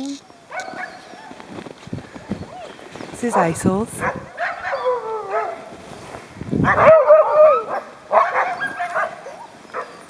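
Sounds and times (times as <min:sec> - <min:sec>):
dogs whining and yipping: 0:00.2 - 0:01.8, 0:03.4 - 0:05.8, 0:06.6 - 0:10.0.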